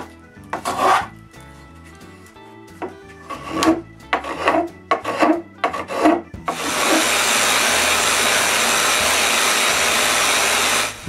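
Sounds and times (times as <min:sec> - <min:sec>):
hand plane shaving wood: 0:00.5 - 0:01.2, 0:02.8 - 0:11.0
orbital sander running: 0:06.5 - 0:11.0.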